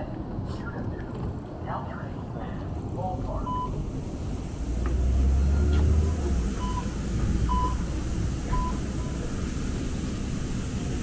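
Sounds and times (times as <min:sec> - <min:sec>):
low rumble of rail car: 0:00.0 - 0:11.0
short electronic beeps: 0:03.5 - 0:03.8, 0:08.5 - 0:08.8.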